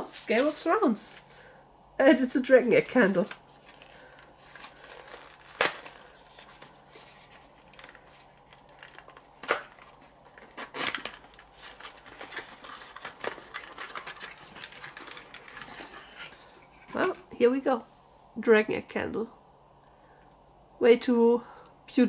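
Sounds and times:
plastic crinkling: 0:00.0 - 0:01.3, 0:02.6 - 0:17.3.

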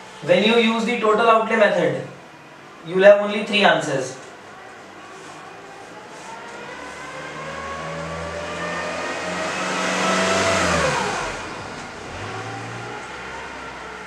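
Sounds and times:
vehicle driving past: 0:04.8 - 0:14.0.

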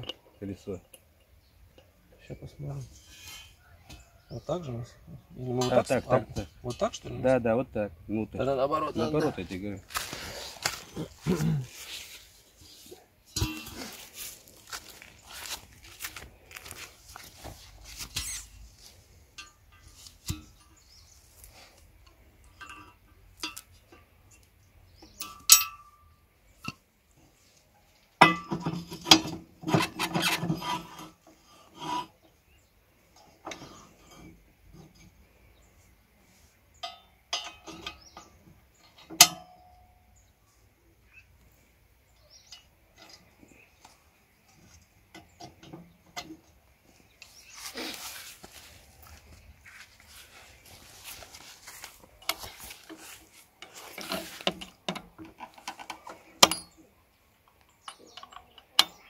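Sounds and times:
metal clinks and scrapes: 0:02.7 - 0:04.4, 0:08.9 - 0:26.8, 0:28.2 - 0:32.2, 0:36.7 - 0:40.0, 0:44.5 - 0:56.9.

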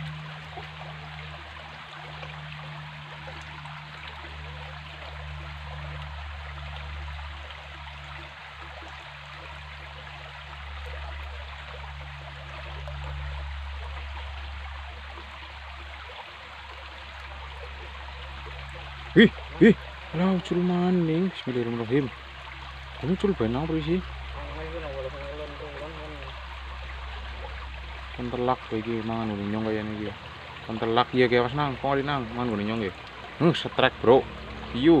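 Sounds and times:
stream water splashing over stones: 0:00.0 - 0:35.0.

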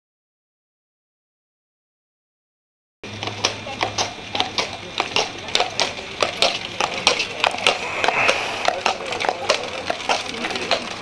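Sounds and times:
horse hooves clopping on pavement: 0:03.1 - 0:07.8, 0:08.8 - 0:11.0.

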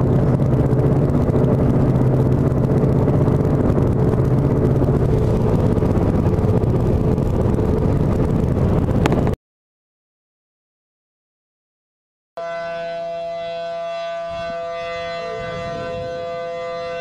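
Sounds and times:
car engine and road noise: 0:00.0 - 0:09.4
constant low hum: 0:00.0 - 0:09.4, 0:12.4 - 0:17.0.

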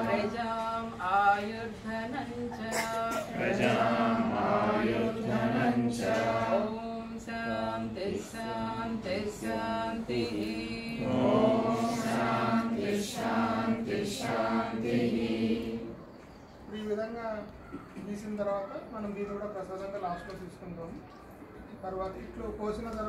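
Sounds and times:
voices chanting together: 0:00.0 - 0:16.2.

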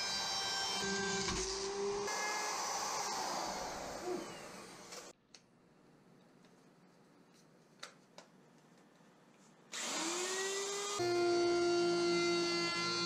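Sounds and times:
electric router whining: 0:00.0 - 0:05.1, 0:09.8 - 0:13.0.

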